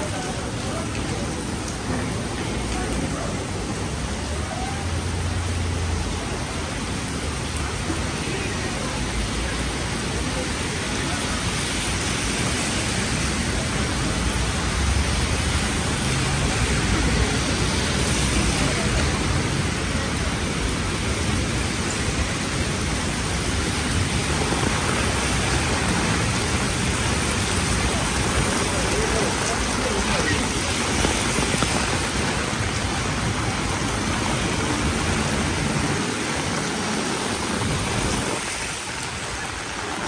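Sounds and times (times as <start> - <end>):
steady rain hiss: 0.0 - 40.0.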